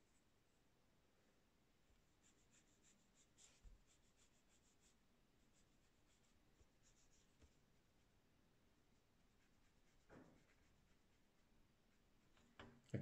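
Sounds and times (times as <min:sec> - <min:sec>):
brush strokes on paper: 0:02.0 - 0:08.2, 0:08.8 - 0:12.6.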